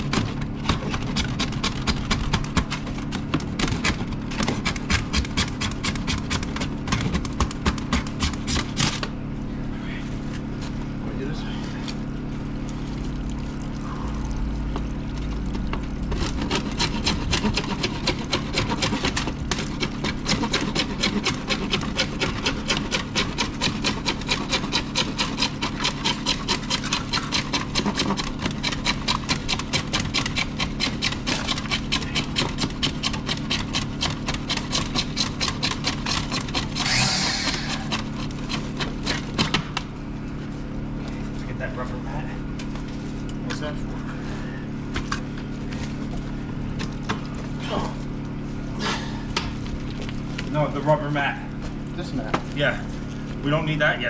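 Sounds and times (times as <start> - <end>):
hand saw cutting pipe: 0.0 - 9.1, 16.1 - 39.7.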